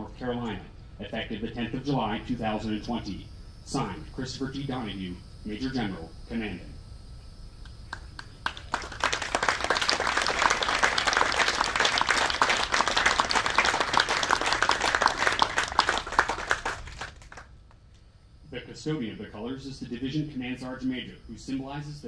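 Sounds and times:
audience clapping: 7.9s - 17.8s.

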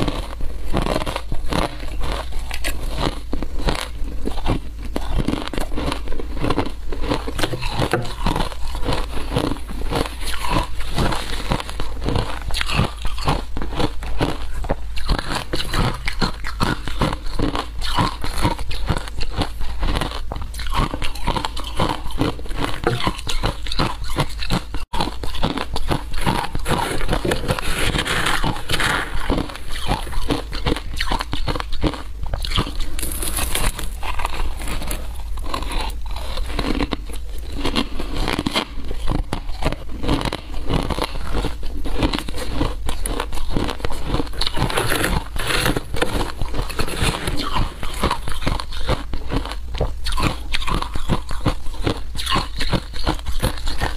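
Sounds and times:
chewing shaved ice: 0.0s - 53.9s
metal spoon scooping ice: 32.9s - 34.9s.

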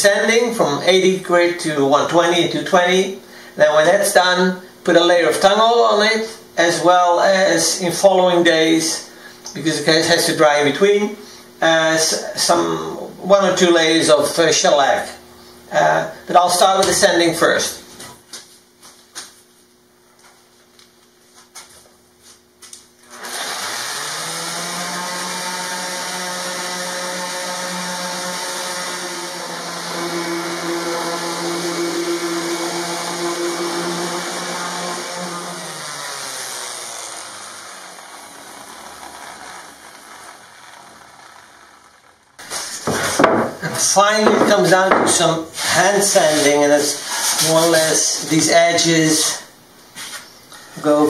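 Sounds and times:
orbit sander sanding wood: 23.0s - 51.0s.

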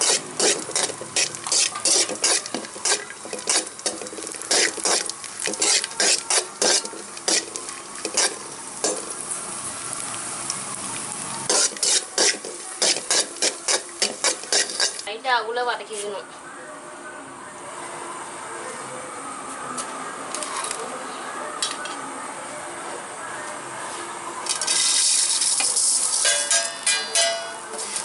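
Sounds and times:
metal ladle scraping a pan: 0.0s - 9.1s, 11.5s - 15.1s
nuts sizzling in fat: 0.0s - 15.1s, 24.5s - 26.6s.

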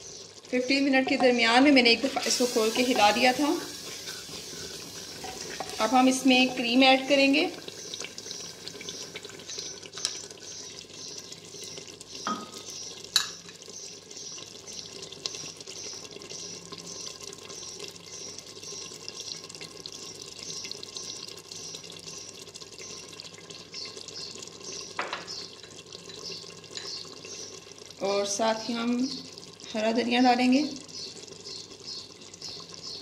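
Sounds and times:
curry bubbling and sizzling: 0.0s - 33.0s
spoon knocking on pot: 12.2s - 12.6s.

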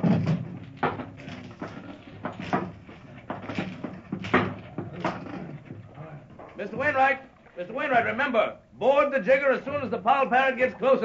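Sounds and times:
wooden knocks and thumps: 0.0s - 7.2s.

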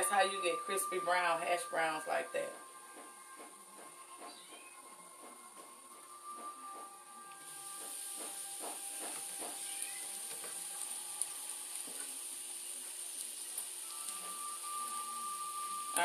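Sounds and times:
hash browns sizzling in pan: 0.0s - 4.9s, 5.6s - 16.0s.

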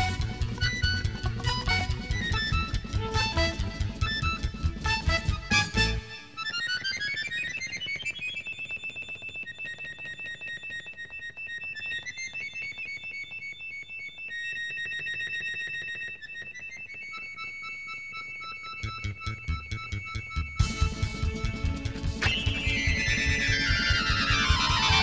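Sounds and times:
accordion playing high notes: 0.0s - 7.2s, 18.8s - 25.0s.

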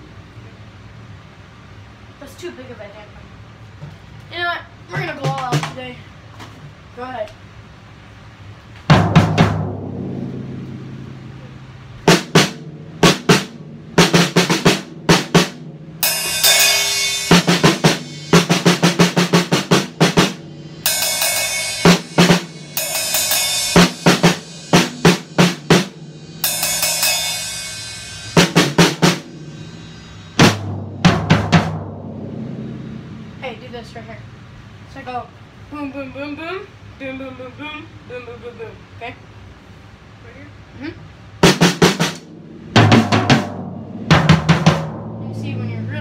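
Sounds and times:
bass drum hits: 8.9s - 34.8s, 41.4s - 46.0s
snare and tom strokes: 12.1s - 33.4s
crashing cymbal ringing: 16.0s - 18.8s, 20.4s - 30.4s.

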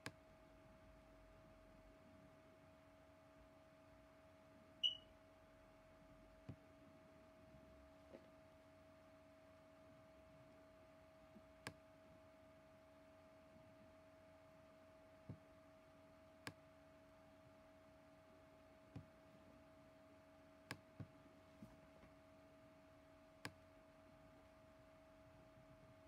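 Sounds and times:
faint two-tone electrical hum: 0.0s - 26.0s
computer mouse clicks: 11.3s - 11.8s, 23.4s - 23.6s.

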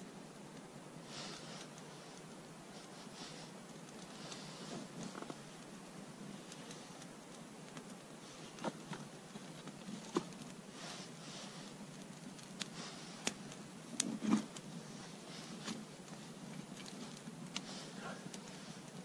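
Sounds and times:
faint steady hiss: 0.0s - 19.0s
fire crackling: 0.0s - 19.0s
sharp pops and snaps: 3.6s - 10.7s, 11.7s - 14.7s.

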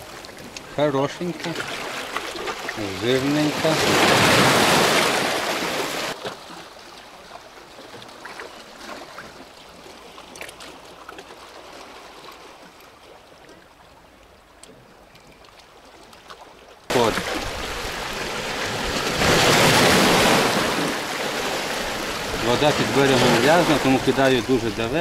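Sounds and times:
waves splashing on boulders: 0.0s - 7.1s, 16.9s - 25.0s.

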